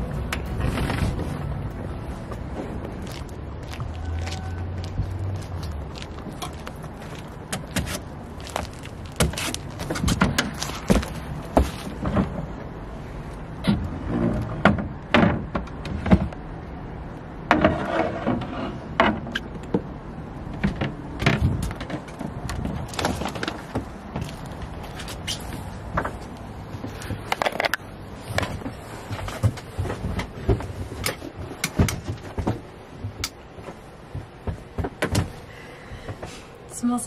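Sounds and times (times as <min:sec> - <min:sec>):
knocks clunks and rattles: 0:00.0 - 0:12.6, 0:13.6 - 0:16.5, 0:17.4 - 0:36.4
footsteps on boat: 0:02.1 - 0:12.3, 0:28.3 - 0:36.4.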